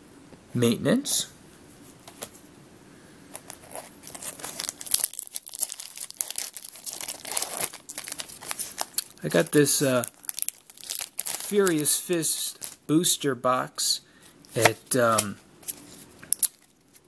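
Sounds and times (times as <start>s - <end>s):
foil wrapper tearing and crinkling: 3.4s - 9.2s, 9.9s - 12.8s.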